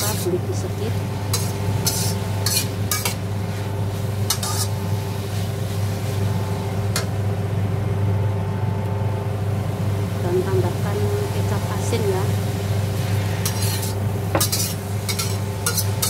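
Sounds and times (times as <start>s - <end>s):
steady low hum: 0.0s - 16.0s
metal spatula scraping a wok: 1.3s - 3.2s, 4.3s - 4.8s, 13.0s - 16.0s.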